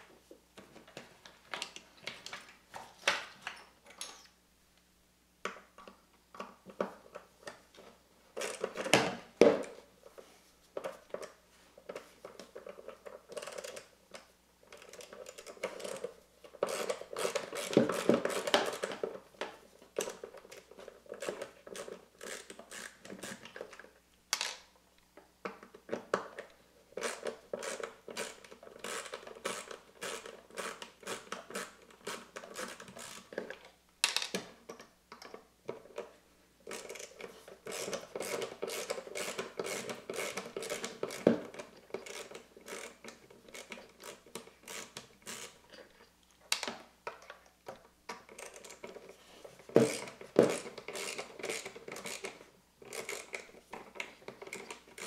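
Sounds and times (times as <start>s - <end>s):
screwdriver clicking on plastic parts: 36.7s - 45.9s, 49.7s - 55.0s.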